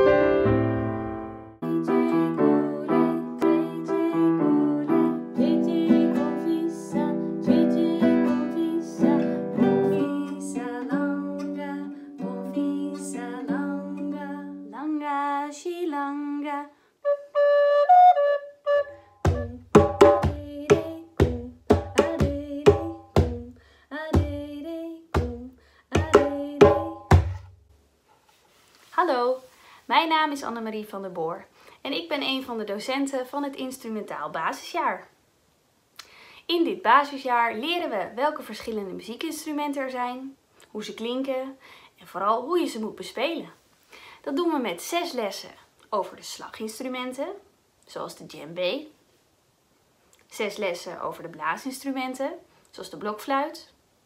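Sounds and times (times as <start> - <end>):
woman singing: 1.6 - 16.8, 19.3 - 27.3
hand drum rhythm: 19.2 - 23.5, 24.2 - 24.5, 25.2 - 27.6.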